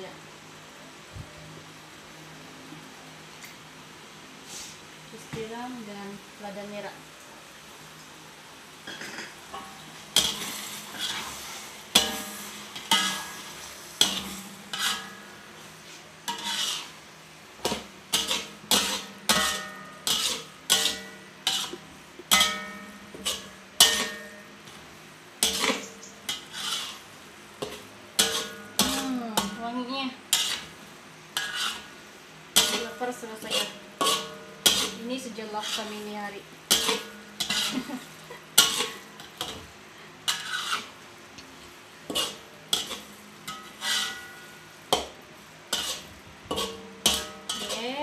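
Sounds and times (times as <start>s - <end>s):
spatula scraping a pot: 8.9s - 17.0s, 17.6s - 24.4s, 25.4s - 29.6s, 30.3s - 30.8s, 31.4s - 32.0s, 32.6s - 38.0s, 38.6s - 39.6s, 40.3s - 41.0s, 42.1s - 45.1s, 45.7s - 48.0s.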